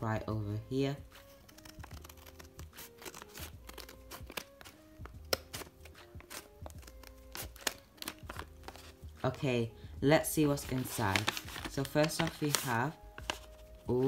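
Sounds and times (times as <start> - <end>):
soft background music: 0.0 - 14.0
scissors snipping paper: 1.1 - 8.9, 10.7 - 13.6.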